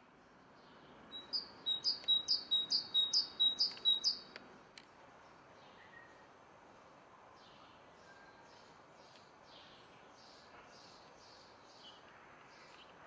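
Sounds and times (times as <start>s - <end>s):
small songbird singing high notes: 1.1s - 4.3s.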